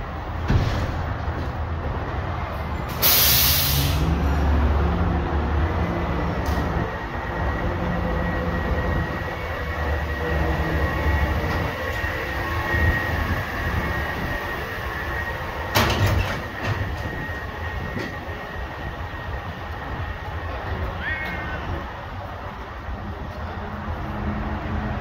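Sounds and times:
garbage truck rumbling: 0.0s - 25.0s.

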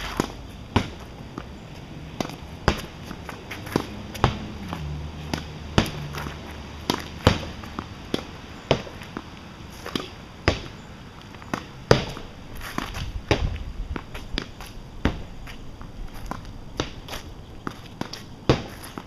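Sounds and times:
footsteps scuffing on pavement: 0.0s - 19.0s
tennis ball knocks: 2.2s - 10.8s, 11.5s - 15.3s, 16.3s - 19.0s.

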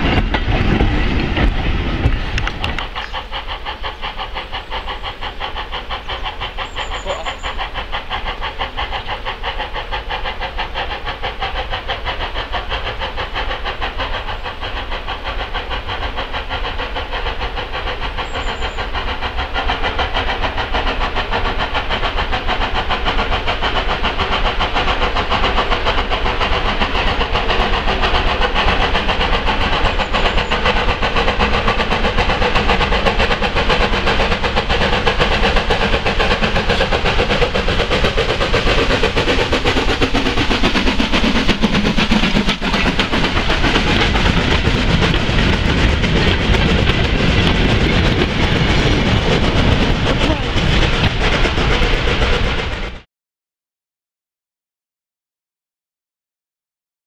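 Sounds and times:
steam locomotive exhaust beating: 0.0s - 53.1s.

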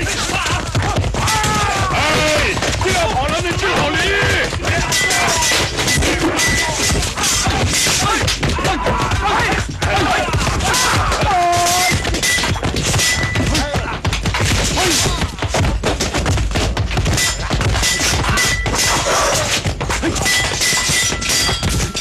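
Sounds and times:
person shouting: 0.0s - 2.6s, 6.5s - 12.0s
fight thuds and clashing impacts: 0.0s - 22.0s.

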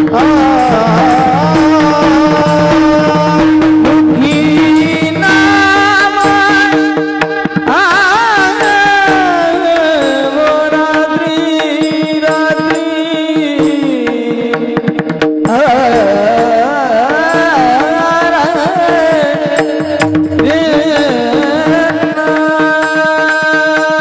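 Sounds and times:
hand cymbals struck in rhythm: 0.0s - 24.0s
man singing: 0.0s - 24.0s
percussion: 0.0s - 24.0s.

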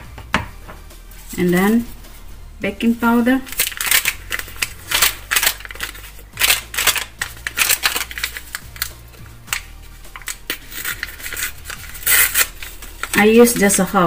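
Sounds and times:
paper sachet crinkling: 3.4s - 14.0s.

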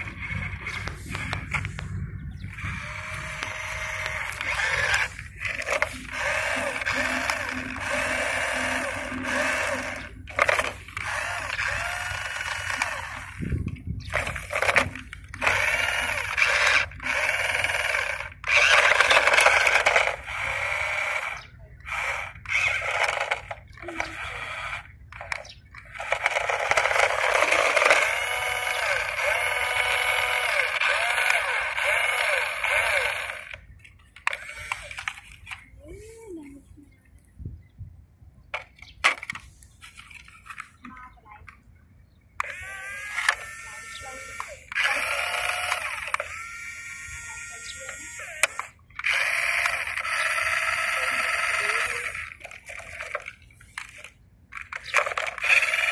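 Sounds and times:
toy truck warbling electronic tone: 2.5s - 13.4s, 34.3s - 35.2s, 42.4s - 53.4s.

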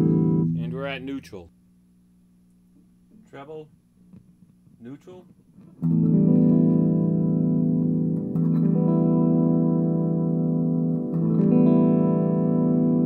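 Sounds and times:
electric guitar chords strummed: 0.0s - 1.0s, 5.6s - 13.0s.

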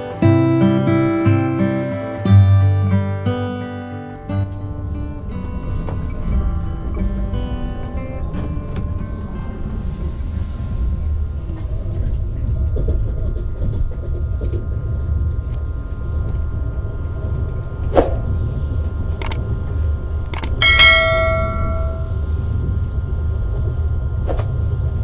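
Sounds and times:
low vehicle rumble: 4.2s - 25.0s
faint steady tones: 15.1s - 23.4s
sharp clicks: 19.2s - 19.4s, 20.3s - 20.6s.

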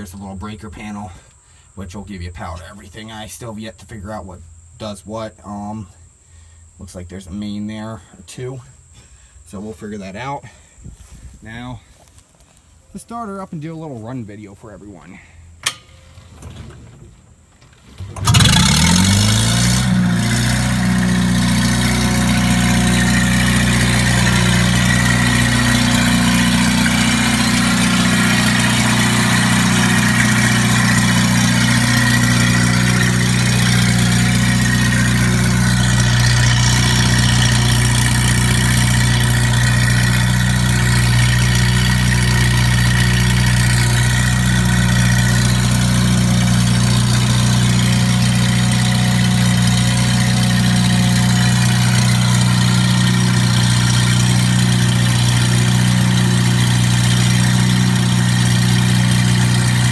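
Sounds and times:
gasoline engine starting and running: 15.2s - 59.9s.

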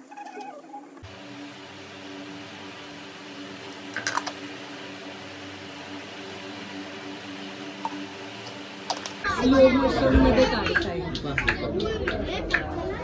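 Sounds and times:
low hum: 1.0s - 11.0s.

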